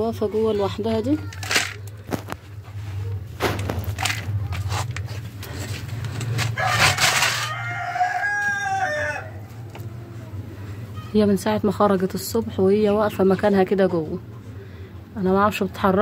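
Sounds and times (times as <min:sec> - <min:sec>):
rooster crowing: 0:06.4 - 0:09.7.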